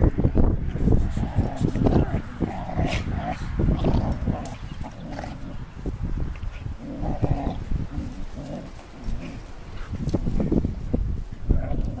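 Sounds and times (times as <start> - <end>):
dogs growling while play-fighting: 0.6 - 12.0.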